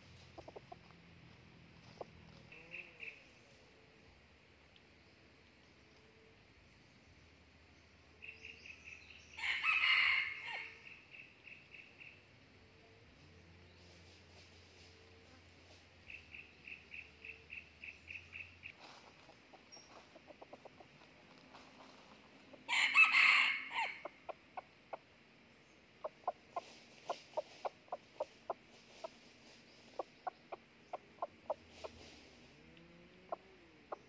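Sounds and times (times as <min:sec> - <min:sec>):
rooster crowing: 0:09.4 - 0:10.8, 0:22.7 - 0:24.1.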